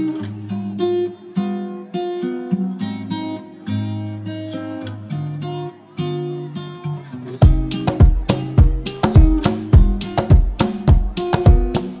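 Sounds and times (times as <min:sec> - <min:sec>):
acoustic guitar plucked notes: 0:00.0 - 0:12.0
bass line: 0:07.4 - 0:12.0.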